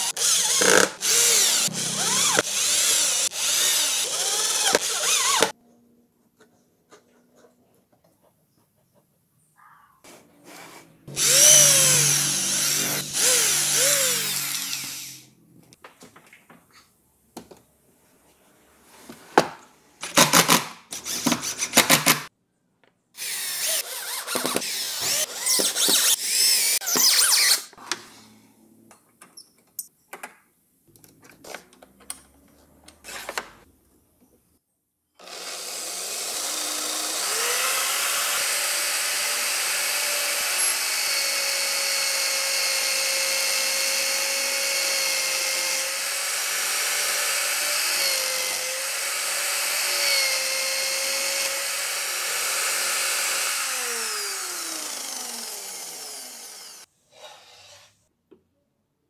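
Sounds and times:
cordless drill driving screws: 0:00.0 - 0:05.6, 0:11.1 - 0:15.2, 0:23.2 - 0:27.6, 0:35.2 - 0:56.9
electric drill boring into wood: 0:00.0 - 0:05.6, 0:11.1 - 0:15.3, 0:23.2 - 0:27.6, 0:35.2 - 0:56.9
power drill running: 0:00.0 - 0:05.6, 0:11.1 - 0:15.3, 0:23.2 - 0:27.6, 0:35.2 - 0:56.9.

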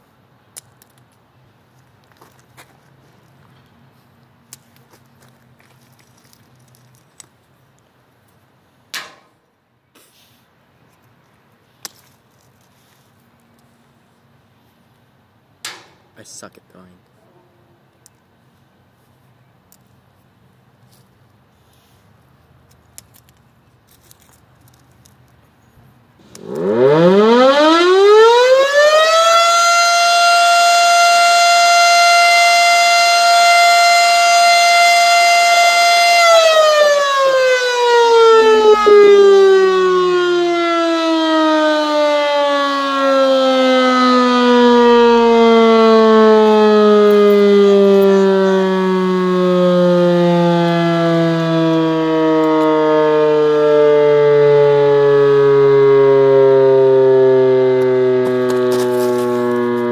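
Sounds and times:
warning siren wailing: 0:26.2 - 0:59.9.

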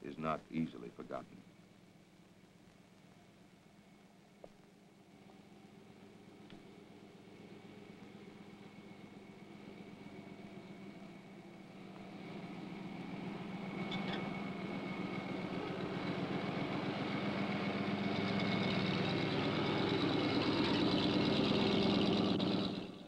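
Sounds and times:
pickup truck engine running: 0:05.2 - 0:23.0.

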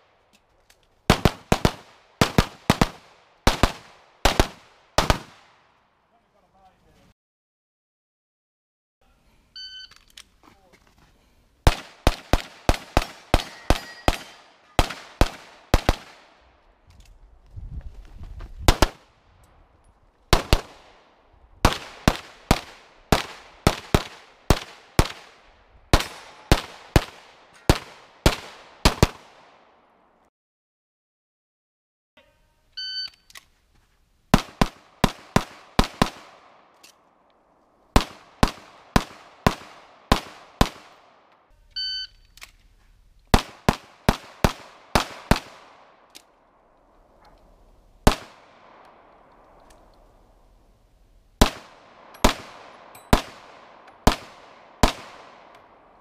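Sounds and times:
rapid pistol fire: 0:01.1 - 0:05.4, 0:11.7 - 0:16.3, 0:21.6 - 0:29.4, 0:38.0 - 0:41.0, 0:43.4 - 0:45.9, 0:48.1 - 0:48.8, 0:51.4 - 0:55.5
shot timer beep: 0:32.8 - 0:33.3, 0:41.8 - 0:42.2.

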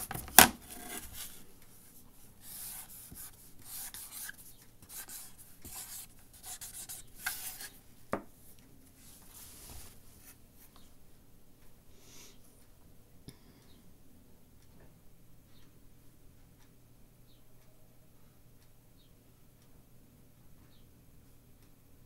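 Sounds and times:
pen scratching while writing: 0:02.4 - 0:07.8.

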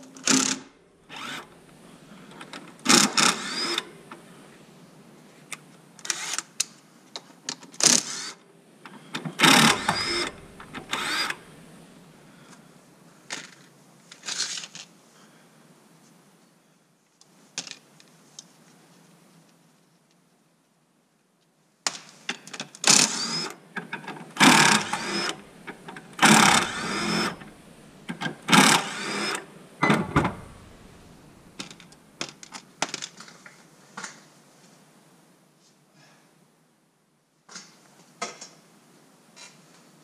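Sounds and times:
cordless driver motor whine: 0:01.1 - 0:01.5, 0:03.0 - 0:03.8, 0:09.4 - 0:11.7, 0:23.0 - 0:23.6, 0:24.4 - 0:31.7.

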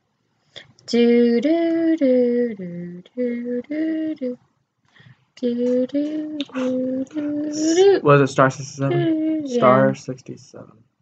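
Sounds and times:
woman singing wordless tune: 0:00.6 - 0:04.4, 0:05.4 - 0:08.1, 0:08.8 - 0:10.0.

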